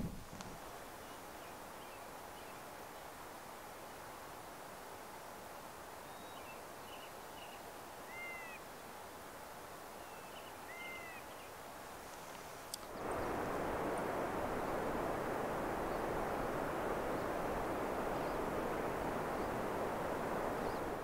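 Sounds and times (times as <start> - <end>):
click: 12.1 - 13.0.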